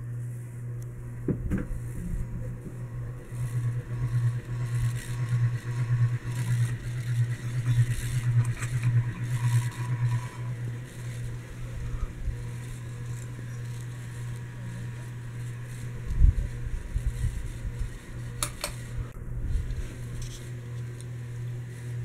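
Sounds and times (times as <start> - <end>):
ceiling fan motor hum: 0.0 - 22.0.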